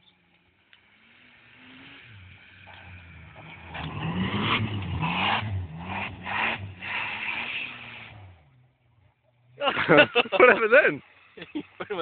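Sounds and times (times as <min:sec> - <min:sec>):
car engine revving hard: 0:01.0 - 0:08.6.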